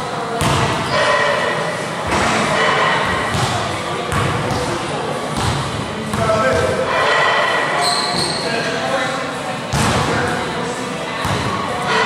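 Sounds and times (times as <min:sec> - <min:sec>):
basketball bouncing on gym floor: 0:00.4 - 0:00.8, 0:03.0 - 0:04.7, 0:05.4 - 0:06.8, 0:11.2 - 0:11.5.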